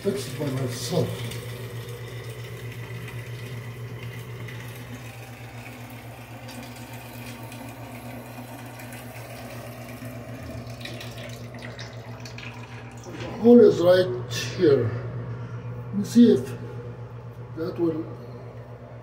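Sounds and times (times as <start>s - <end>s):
low fluttering hum: 10.0s - 19.0s.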